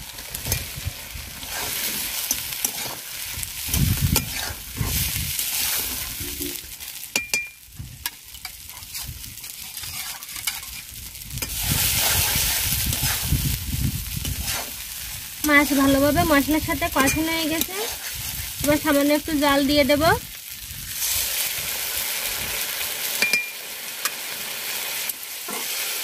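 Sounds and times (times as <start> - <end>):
fish sizzling in hot oil: 0.0 - 26.0
metal spatula scraping pan: 8.4 - 10.8, 25.5 - 25.8.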